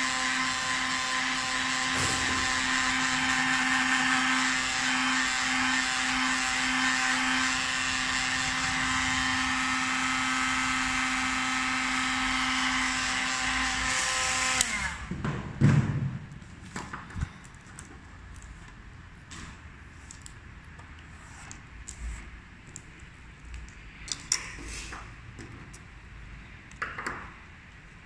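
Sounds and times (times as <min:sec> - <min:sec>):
electric motor whining: 0:00.0 - 0:15.1.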